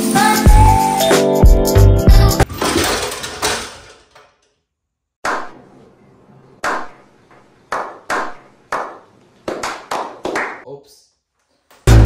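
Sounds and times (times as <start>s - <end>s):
music: 0.0s - 2.5s.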